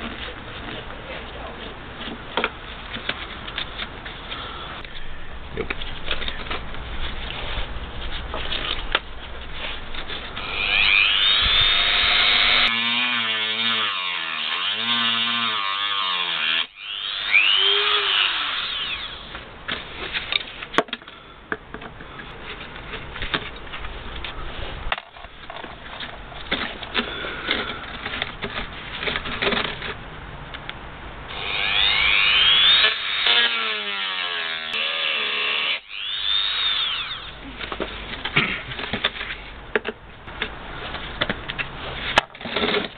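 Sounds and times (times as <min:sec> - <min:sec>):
rotary tool whining: 0:10.3 - 0:19.4, 0:31.3 - 0:37.4.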